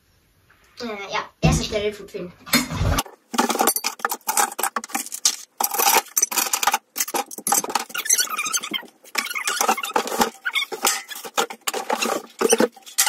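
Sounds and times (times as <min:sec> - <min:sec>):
cardboard packaging rustling: 0:03.0 - 0:13.0.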